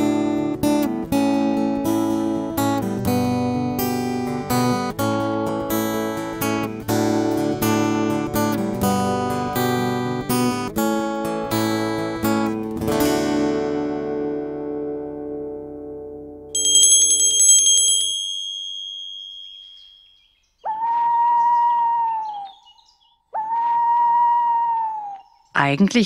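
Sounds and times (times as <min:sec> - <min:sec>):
plucked string chords: 0:00.0 - 0:16.9.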